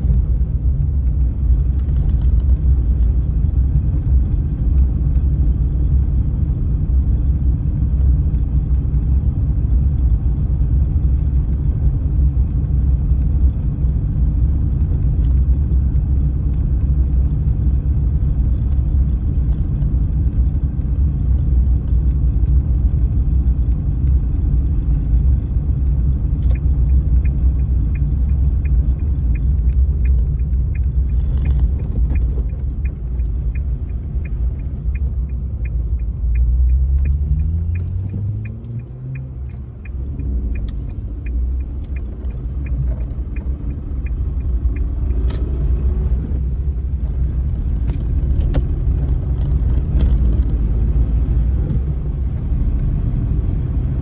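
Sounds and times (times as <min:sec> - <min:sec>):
car road and engine rumble: 0:00.0 - 0:54.0
turn signal ticking: 0:00.0 - 0:54.0.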